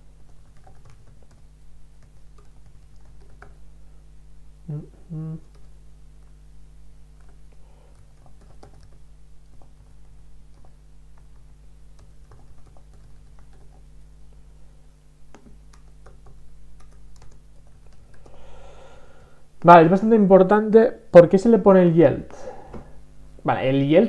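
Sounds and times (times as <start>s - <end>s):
low electrical hum: 0.0s - 24.0s
typing on computer keyboard: 0.3s - 3.6s, 7.2s - 13.8s, 15.3s - 18.4s
brief wordless vocal sound: 4.7s - 5.5s.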